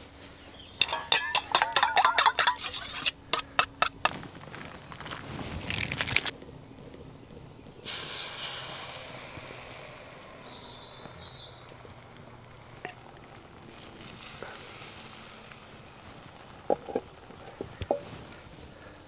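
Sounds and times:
batter sizzling in hot oil: 0:07.8 - 0:12.1, 0:13.5 - 0:17.2.

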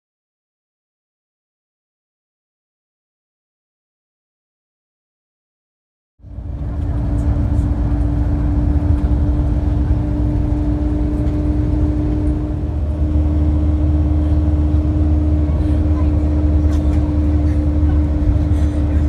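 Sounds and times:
steady low hum: 0:06.2 - 0:19.0
vehicle interior rumble: 0:06.2 - 0:19.0.

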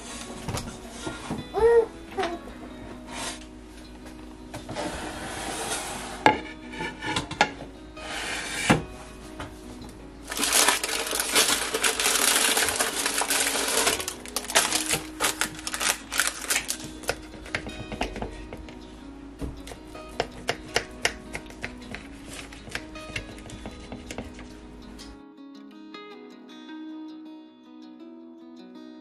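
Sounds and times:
crackling and scraping: 0:02.9 - 0:18.8, 0:19.5 - 0:24.7.

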